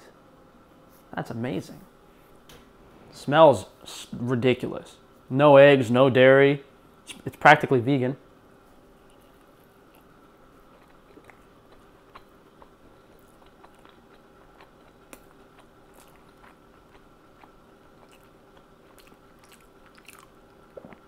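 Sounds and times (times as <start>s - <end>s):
faint chewing: 9.0s - 21.0s.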